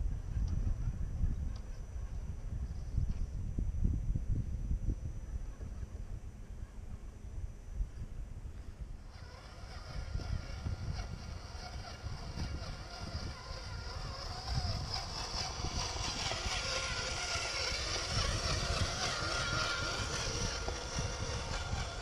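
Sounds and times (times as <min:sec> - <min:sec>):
wind rumble on microphone: 0:00.0 - 0:22.0
toy truck motor whining: 0:09.1 - 0:22.0
wheels on gravel: 0:09.1 - 0:22.0.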